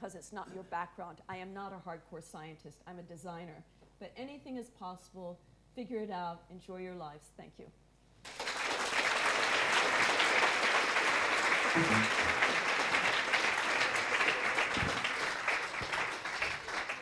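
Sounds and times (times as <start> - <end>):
audience applauding: 8.3 - 17.0.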